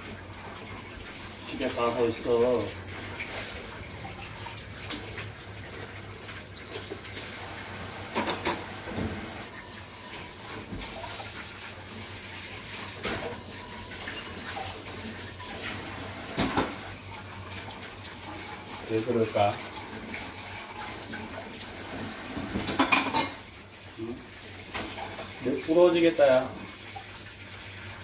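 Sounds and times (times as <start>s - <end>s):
tap running into sink: 8.0s - 9.5s, 15.6s - 16.9s, 21.9s - 23.4s
dishes clinking: 8.1s - 8.7s, 22.5s - 23.4s.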